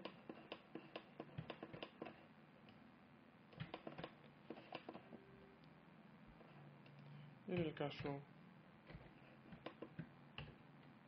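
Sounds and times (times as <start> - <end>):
keyboard and mouse clicking: 0.0 - 2.2.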